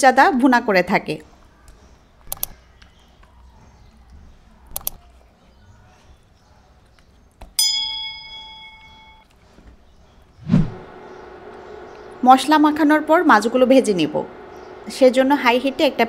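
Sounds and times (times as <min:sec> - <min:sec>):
bell-like notification chime: 0:07.6 - 0:09.2.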